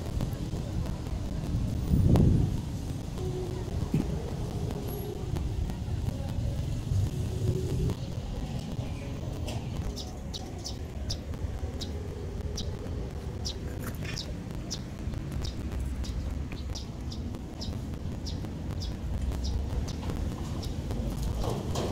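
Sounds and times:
steady low rumble: 0.0s - 21.9s
bird chirping: 8.8s - 21.6s.

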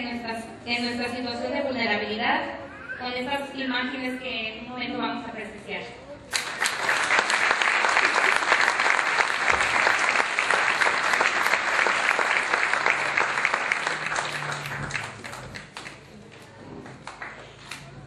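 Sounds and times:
large audience applauding: 6.3s - 16.1s.

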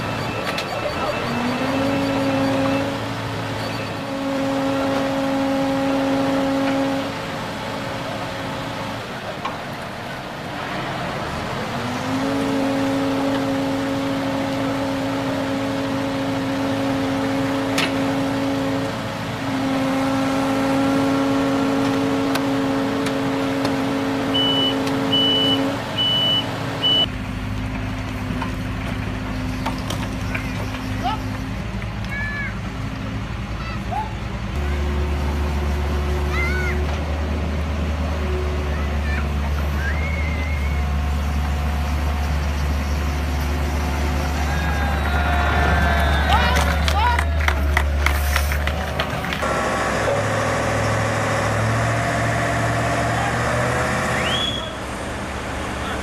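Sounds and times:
high beeps: 0.0s - 3.0s, 24.4s - 27.1s
crane diesel engines straining: 0.0s - 56.0s.

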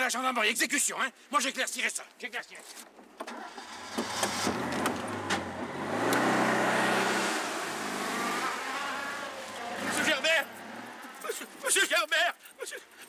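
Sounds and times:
small car engine revving: 3.3s - 11.3s.

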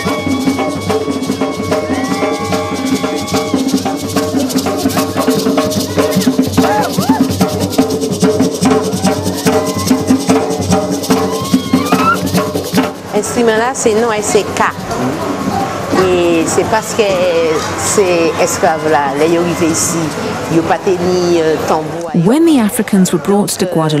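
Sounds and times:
hand drums beaten fast: 0.0s - 21.2s.

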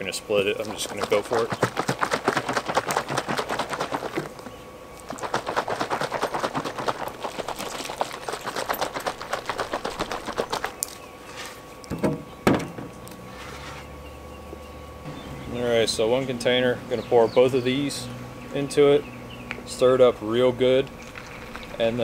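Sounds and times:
metal can rattling while shaken: 0.6s - 4.3s, 5.1s - 10.8s.

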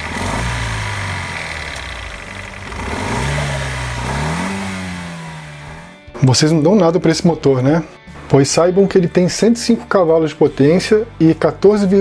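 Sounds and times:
car engine idling and revving: 0.0s - 6.2s.

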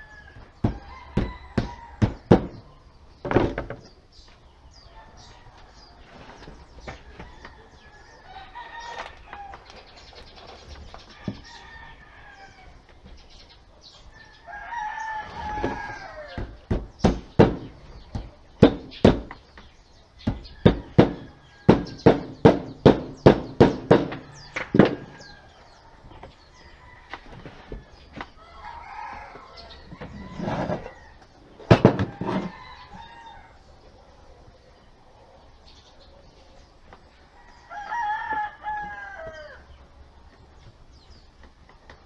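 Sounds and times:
rooster crowing: 0.0s - 2.3s, 7.1s - 9.7s, 11.1s - 12.8s, 14.1s - 16.6s, 24.2s - 31.2s, 32.0s - 33.7s, 37.3s - 39.7s
chickens calling: 0.0s - 42.0s.

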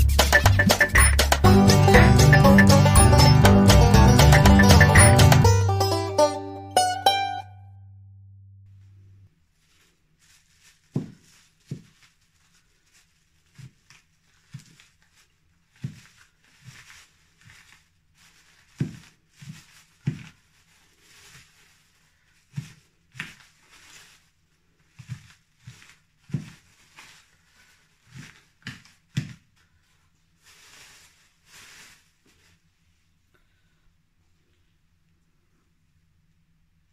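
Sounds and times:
plastic bag rustling: 9.4s - 32.8s
newspaper rustling: 9.5s - 32.6s.

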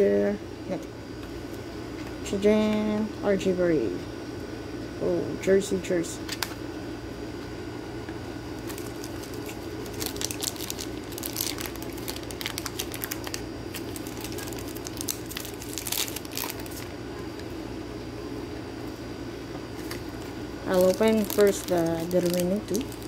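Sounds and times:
steady low hum: 0.0s - 23.0s
plastic crinkling and clicks: 8.6s - 16.9s, 20.7s - 23.0s.

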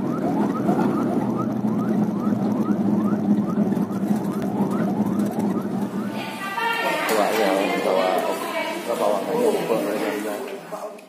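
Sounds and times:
vehicle engine and road noise: 0.0s - 6.1s
ambulance siren yelping: 0.0s - 8.6s.

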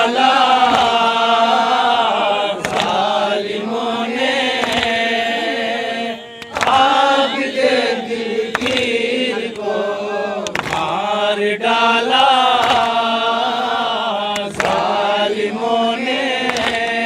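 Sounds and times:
men chanting a lament: 0.0s - 17.0s
sharp slaps: 0.6s - 1.2s, 2.6s - 3.2s, 4.4s - 5.3s, 6.4s - 7.0s, 8.4s - 9.7s, 10.4s - 11.0s, 12.5s - 13.2s, 14.3s - 15.0s, 16.4s - 17.0s.

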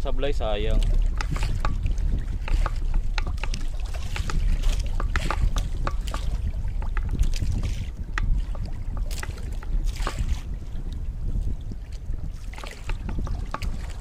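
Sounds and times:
water lapping against boat: 0.0s - 14.0s
wind rumbling on microphone: 0.0s - 14.0s
small clicks and taps: 2.4s - 7.5s.

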